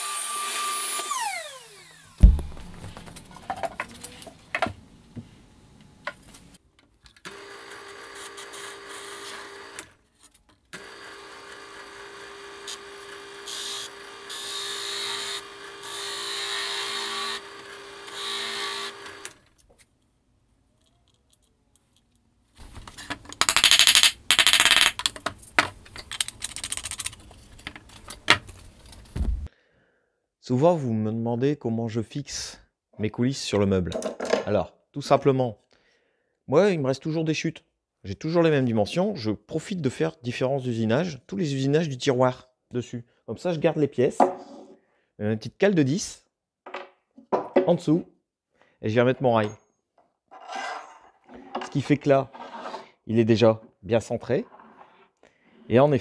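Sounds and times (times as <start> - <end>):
drill bit boring into chipboard: 0.0 - 2.2, 7.3 - 9.9, 10.8 - 19.4
board knocking: 2.2 - 3.9
scraping and knocking: 2.2 - 4.0, 50.3 - 52.9.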